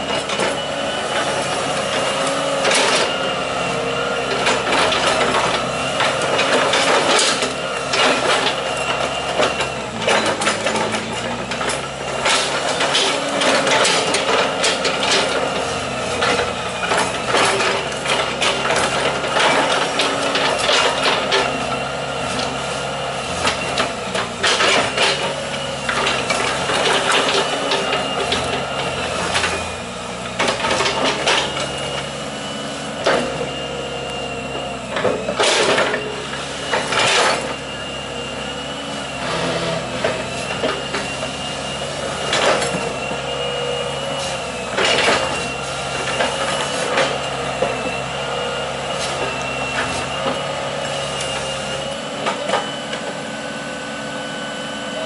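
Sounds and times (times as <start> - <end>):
excavator diesel engine running: 0.0 - 55.0
metal clanks and knocks: 9.3 - 15.5.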